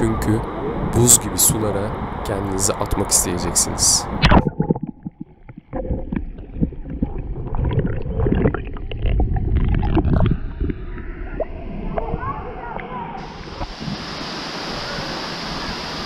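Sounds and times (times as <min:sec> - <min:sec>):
muffled underwater rumbling: 0:00.0 - 0:14.2
underwater knocks and clicks: 0:04.2 - 0:12.9.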